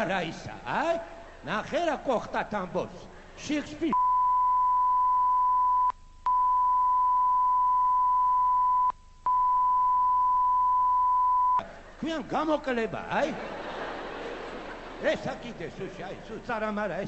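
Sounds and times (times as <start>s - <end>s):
steady electronic beep tone: 4.0s - 11.7s.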